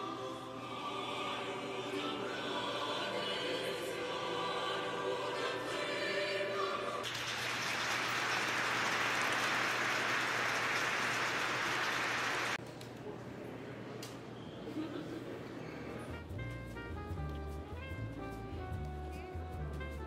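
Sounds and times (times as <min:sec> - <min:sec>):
choir singing: 0:00.0 - 0:07.1
audience applause: 0:07.0 - 0:12.6.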